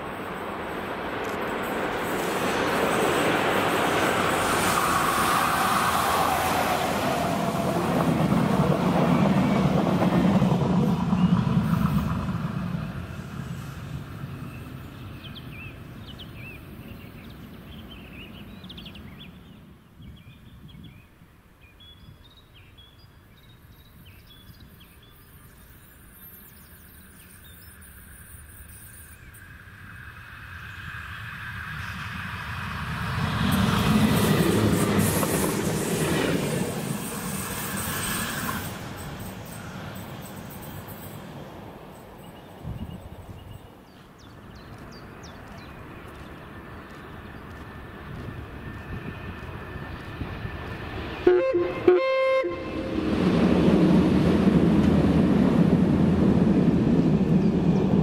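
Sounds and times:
train wheel noise: 0.0s - 15.6s, 28.4s - 58.0s
diesel locomotive engine drone: 0.0s - 21.6s, 23.2s - 58.0s
birds chirping: 39.0s - 48.8s.

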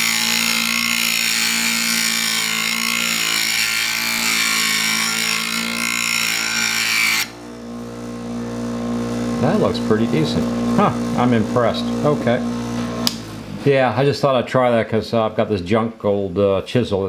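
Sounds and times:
chisel grinding on stone: 0.0s - 7.3s
grinder motor hum: 0.0s - 14.0s.

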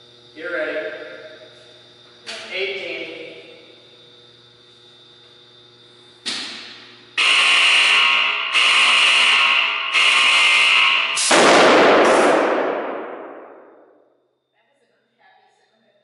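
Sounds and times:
harsh electrical buzz: 0.0s - 14.5s
electrical arcing crack: 7.2s - 13.8s.

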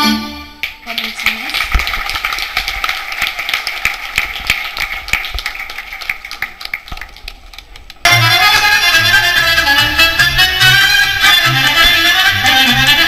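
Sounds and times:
audience applauding: 0.9s - 8.0s.

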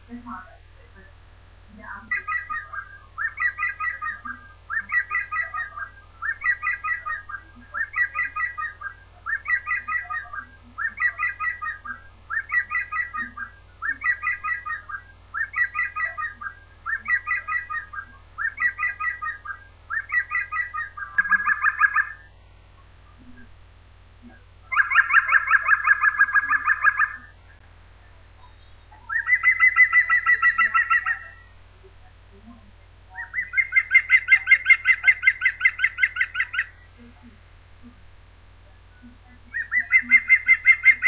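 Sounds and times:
woodpecker calling: 1.8s - 23.6s, 24.2s - 32.1s, 33.1s - 38.0s, 39.0s - 41.0s.

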